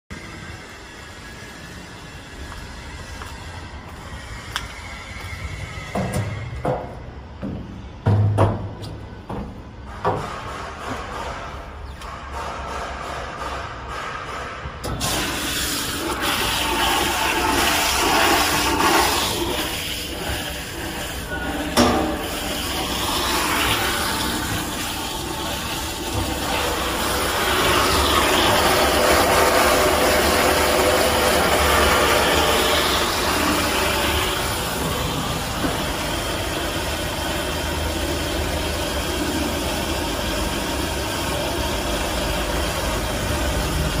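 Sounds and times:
mixer motor humming: 0:15.2 - 0:44.0
stirrer churning liquid: 0:15.4 - 0:35.5.

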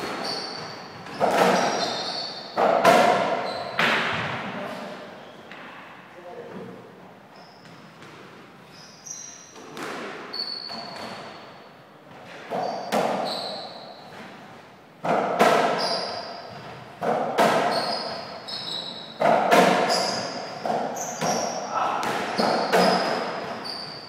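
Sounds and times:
shoes squeaking on court floor: 0:00.0 - 0:05.8, 0:07.3 - 0:14.6, 0:15.5 - 0:24.0
ball hits and bounces knocking: 0:01.1 - 0:01.9, 0:15.0 - 0:15.9, 0:16.5 - 0:18.0, 0:19.2 - 0:23.6.

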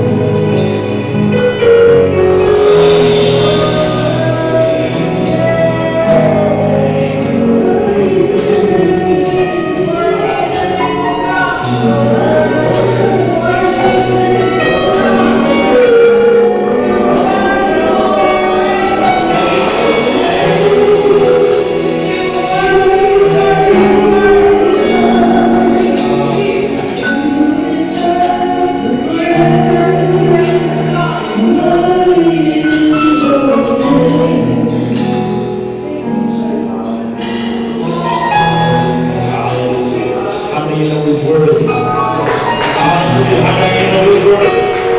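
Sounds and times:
bass notes: 0:00.0 - 0:44.9
choir singing: 0:00.0 - 0:44.9
drum hits: 0:01.7 - 0:06.6, 0:12.7 - 0:27.1.

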